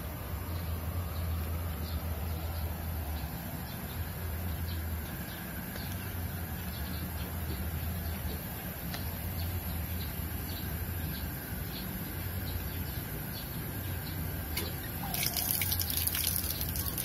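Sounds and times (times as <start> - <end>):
water dripping: 14.6 - 17.0.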